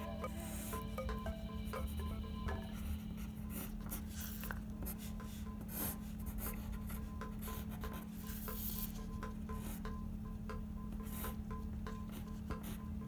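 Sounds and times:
quiet background music: 0:00.0 - 0:13.0
pencil scratching on paper: 0:03.2 - 0:09.9, 0:12.0 - 0:12.8.

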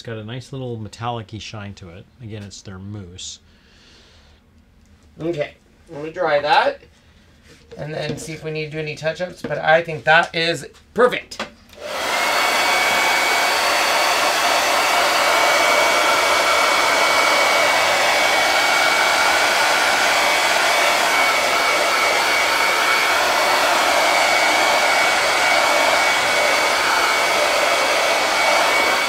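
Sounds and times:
hot-air blower running: 0:11.8 - 0:29.0.

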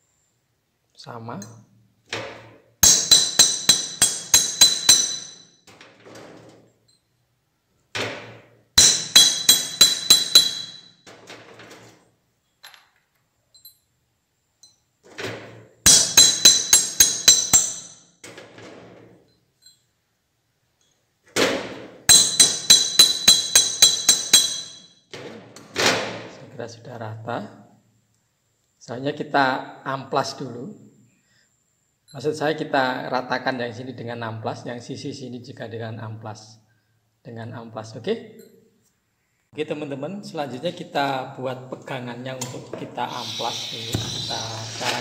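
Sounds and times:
hammer striking steel plate: 0:02.8 - 0:05.7, 0:08.2 - 0:11.1, 0:15.9 - 0:18.1, 0:21.7 - 0:25.0, 0:43.2 - 0:45.0
light metal clinks of handling: 0:12.6 - 0:14.0.

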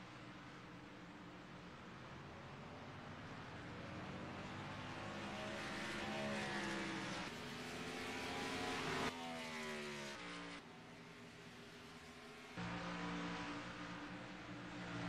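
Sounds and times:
race car passing by: 0:04.2 - 0:15.0.

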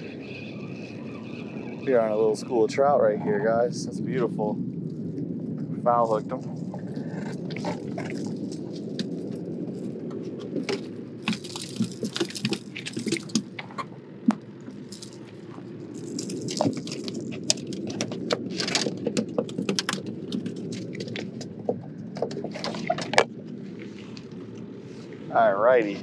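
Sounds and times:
low background rumble: 0:00.0 - 0:26.0
fish flapping wetly: 0:06.7 - 0:24.4.

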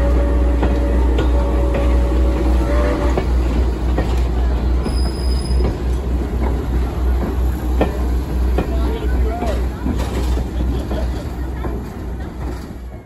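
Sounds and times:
train wheels rumbling on rail: 0:00.0 - 0:13.0
wheel squeal: 0:04.8 - 0:05.8.

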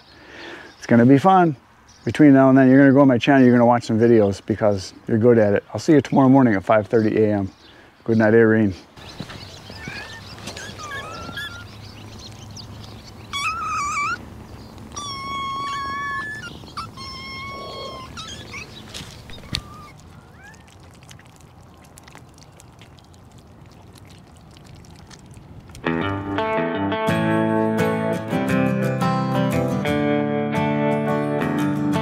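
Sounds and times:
kittens meowing: 0:09.1 - 0:23.0.

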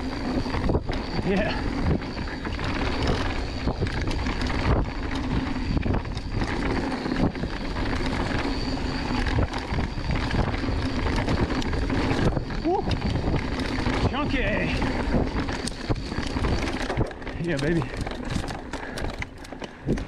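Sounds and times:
bike rattling over rough ground: 0:00.0 - 0:20.0
bike tyre noise on dirt: 0:00.0 - 0:20.0.

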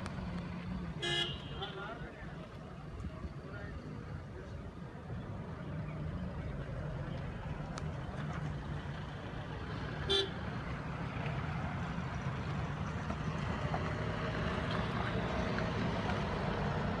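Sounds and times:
distant traffic: 0:00.0 - 0:17.0
vehicle horn toot: 0:01.0 - 0:01.9, 0:10.1 - 0:10.4.

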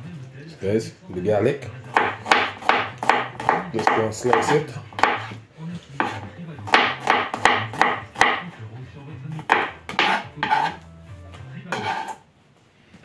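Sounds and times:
knife chopping on cutting board: 0:01.9 - 0:05.4, 0:06.0 - 0:08.6, 0:09.3 - 0:10.8, 0:11.7 - 0:12.2.

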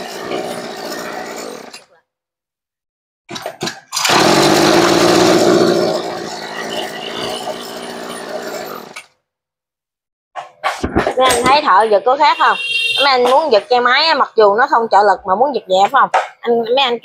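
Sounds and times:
recoil starter tugs: 0:03.3 - 0:09.1
brush cutter engine running: 0:04.0 - 0:08.9.

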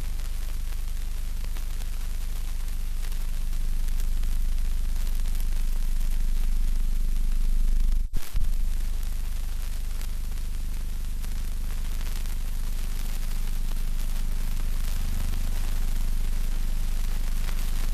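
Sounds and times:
constant hiss: 0:00.0 - 0:17.9
mains hum: 0:00.0 - 0:17.9.

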